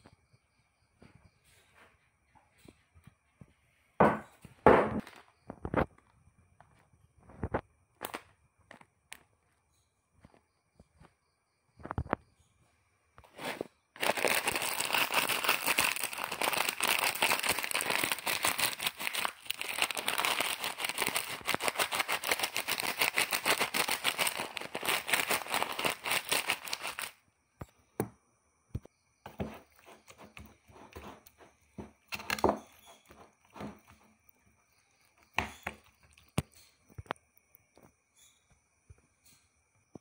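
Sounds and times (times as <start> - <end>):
plastic snack packet crinkling: 13.4 - 27.2
light taps and scrapes: 29.3 - 34.1.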